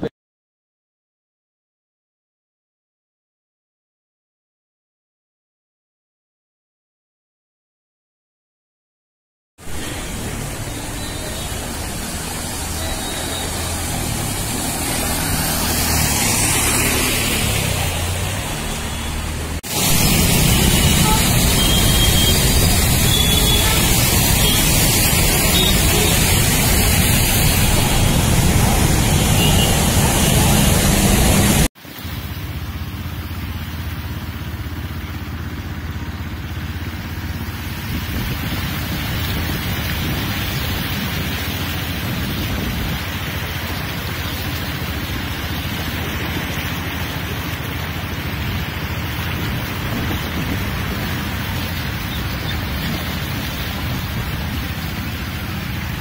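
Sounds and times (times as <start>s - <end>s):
heavy rain hissing: 9.6s - 35.1s, 35.7s - 56.0s
car driving through floodwater: 9.6s - 56.0s.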